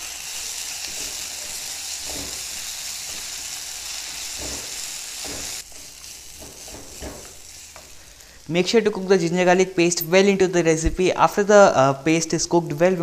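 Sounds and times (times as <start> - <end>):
food sizzling in hot oil: 0.0 - 10.3.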